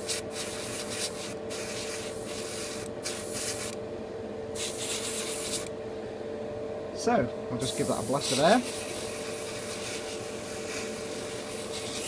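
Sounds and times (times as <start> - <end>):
airbrush hissing: 0.0 - 3.8, 4.6 - 5.7, 7.6 - 12.0
air compressor humming: 0.0 - 12.0.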